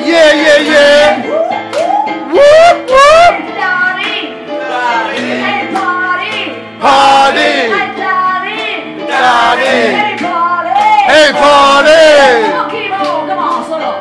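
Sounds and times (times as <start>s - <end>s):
woman singing soul song: 12.3s - 14.0s.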